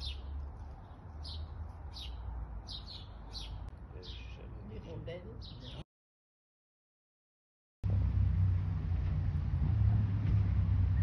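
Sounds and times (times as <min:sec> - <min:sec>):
low rumble: 0:07.8 - 0:11.0.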